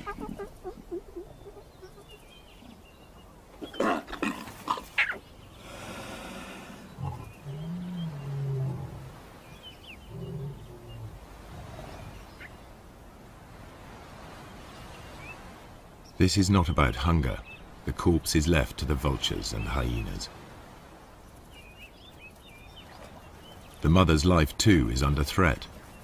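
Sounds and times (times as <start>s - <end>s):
lionesses snarling and growling: 3.6s - 9.4s, 10.0s - 12.3s.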